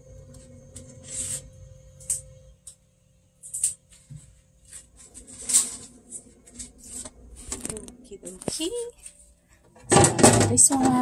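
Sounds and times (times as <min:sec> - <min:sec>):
plastic rubbing and scraping: 0:03.5 - 0:08.8.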